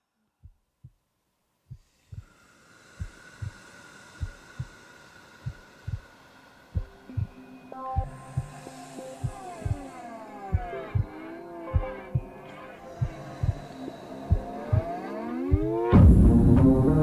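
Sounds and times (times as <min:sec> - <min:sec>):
faint steady hum: 0:00.0 - 0:17.0
heartbeat-like low double thumps: 0:06.8 - 0:07.4, 0:08.0 - 0:08.6, 0:09.2 - 0:09.9, 0:10.5 - 0:12.4, 0:13.0 - 0:17.0
pitched music tones: 0:06.8 - 0:17.0.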